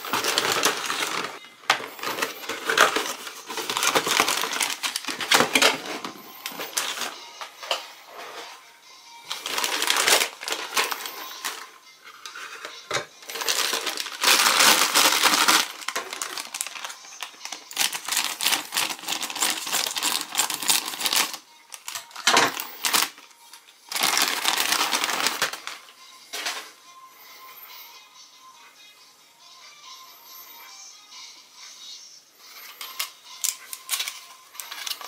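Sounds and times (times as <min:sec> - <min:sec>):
plastic packaging crinkling: 0:00.0 - 0:07.2, 0:09.3 - 0:25.8, 0:32.7 - 0:35.0.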